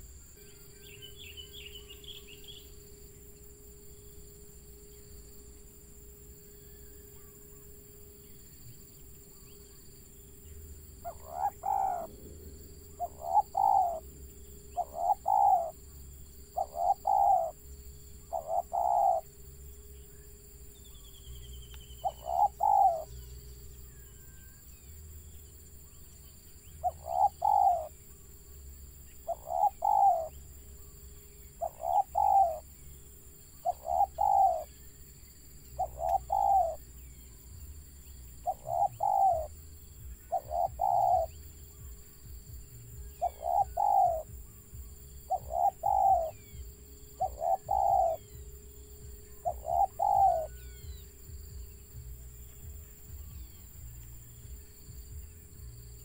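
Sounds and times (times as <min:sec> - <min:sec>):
dove cooing: 0:10.5 - 0:19.7, 0:21.4 - 0:24.7, 0:26.6 - 0:28.2, 0:29.1 - 0:30.5, 0:31.5 - 0:32.7, 0:33.6 - 0:34.7, 0:35.7 - 0:36.9, 0:38.2 - 0:53.5.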